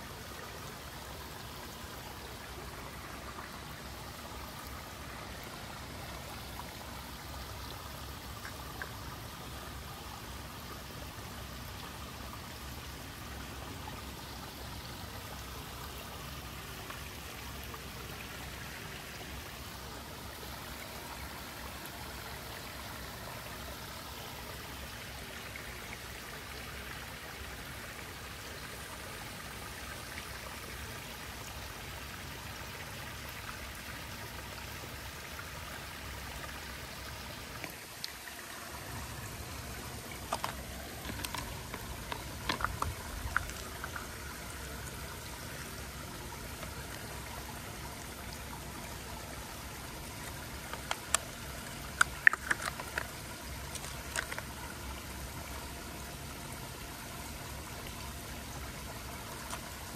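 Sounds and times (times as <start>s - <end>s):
running water rushing: 0.0s - 59.9s
faint ticks: 59.3s - 59.9s.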